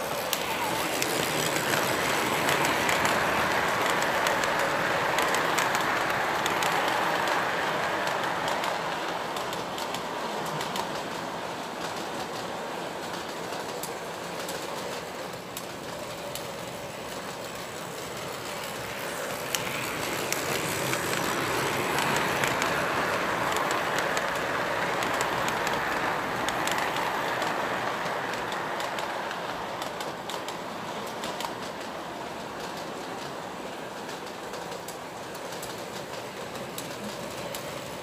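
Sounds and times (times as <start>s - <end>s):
model train wheels rumbling and clicking: 0.0s - 38.0s.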